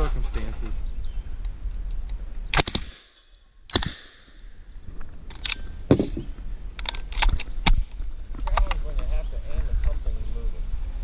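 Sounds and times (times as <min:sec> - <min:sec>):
submachine gun firing: 0:02.6 - 0:04.4.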